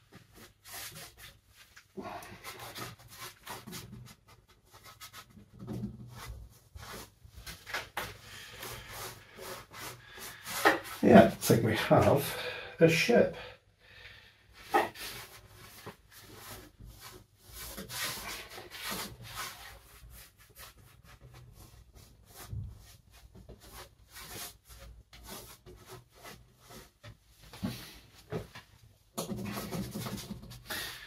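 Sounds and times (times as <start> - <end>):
paintbrush scrubbing strokes: 0.3 - 5.4, 6.2 - 12.4, 14.6 - 27.0.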